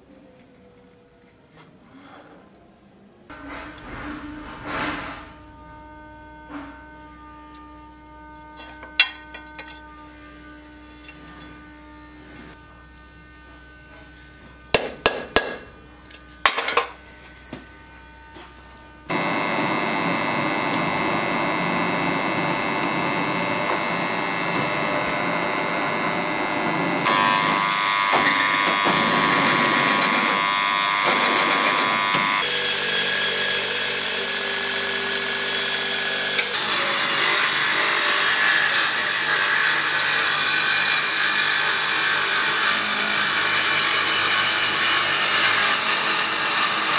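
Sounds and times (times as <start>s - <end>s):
drill press drilling steel: 19.1s - 46.9s.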